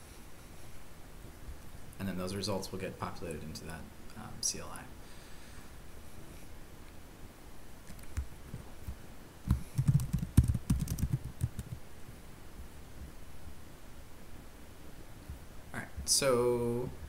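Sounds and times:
keyboard typing: 0:07.8 - 0:08.3, 0:09.5 - 0:11.8.

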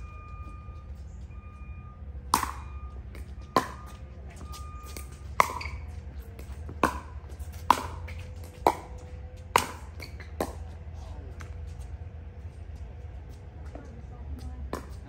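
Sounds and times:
paddles striking plastic ball: 0:06.4 - 0:10.7.

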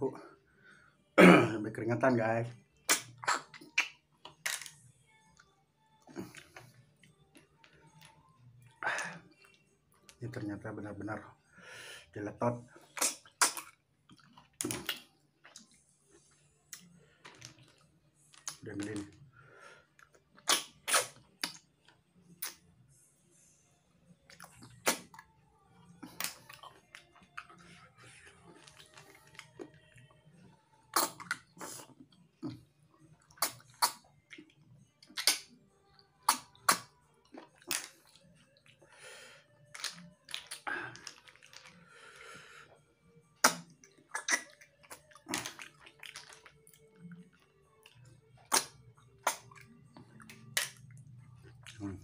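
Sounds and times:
sucking smacks and lip pops: 0:02.8 - 0:04.8, 0:12.8 - 0:19.1, 0:20.0 - 0:22.7, 0:24.2 - 0:25.3, 0:26.0 - 0:27.7, 0:28.5 - 0:29.8, 0:30.9 - 0:32.6, 0:33.2 - 0:35.6, 0:36.2 - 0:38.8, 0:39.7 - 0:41.8, 0:43.3 - 0:51.9
slurping and chewing: 0:02.9 - 0:04.6, 0:12.8 - 0:19.1, 0:19.9 - 0:22.6, 0:24.3 - 0:25.4, 0:26.0 - 0:30.2, 0:30.8 - 0:42.8, 0:43.4 - 0:52.0.

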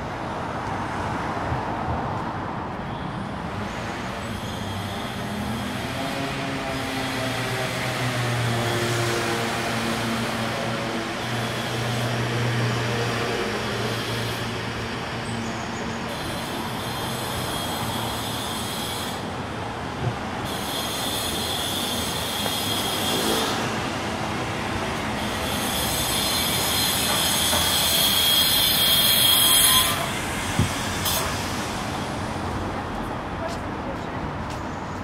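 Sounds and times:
high-pitched squealing: 0:25.2 - 0:32.0.

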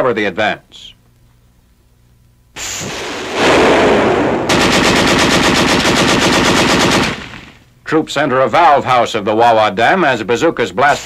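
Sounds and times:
rushing noise: 0:02.6 - 0:05.0
rapid machine-gun fire: 0:02.6 - 0:07.6.

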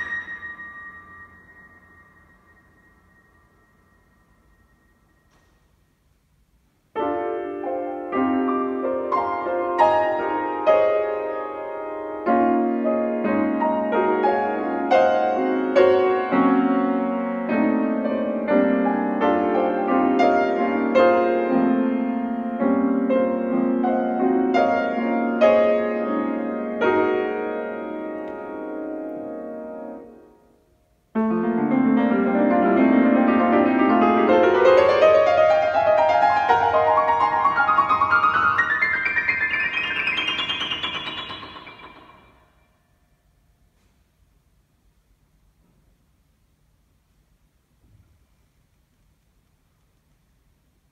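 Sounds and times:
grand piano playing: 0:00.0 - 0:05.5, 0:07.0 - 0:30.4, 0:31.2 - 0:42.7.

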